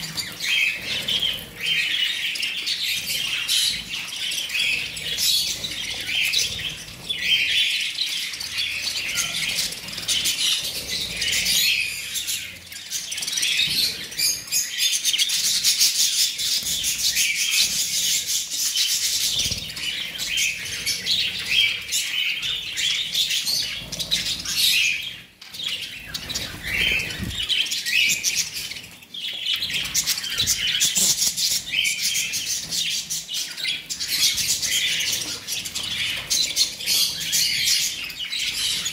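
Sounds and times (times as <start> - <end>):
budgerigars chattering and chirping: 0.0 - 38.9.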